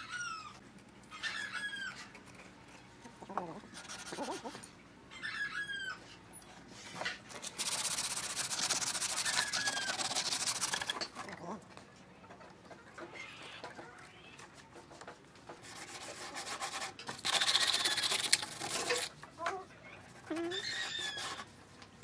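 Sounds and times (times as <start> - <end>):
chicken calling: 0.0 - 2.2, 3.0 - 6.3, 9.2 - 11.0
sandpaper rubbing on wood: 3.8 - 4.5, 7.4 - 11.0, 15.6 - 19.1.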